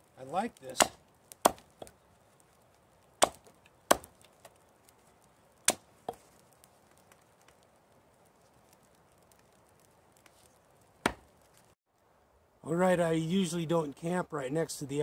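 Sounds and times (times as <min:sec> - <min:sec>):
hatchet chopping wood: 0:00.7 - 0:02.0, 0:03.2 - 0:04.6, 0:05.6 - 0:06.2, 0:11.0 - 0:11.3.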